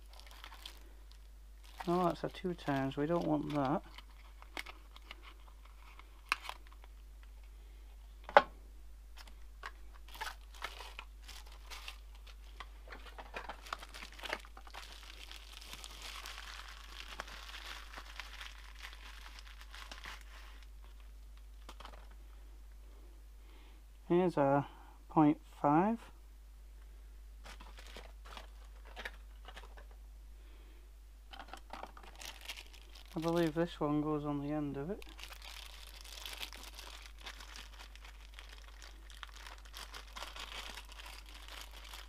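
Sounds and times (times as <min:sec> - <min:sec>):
plastic packaging crinkling: 0:00.0 - 0:07.0, 0:09.2 - 0:22.2, 0:27.4 - 0:30.0, 0:31.3 - 0:33.8, 0:34.8 - 0:42.0.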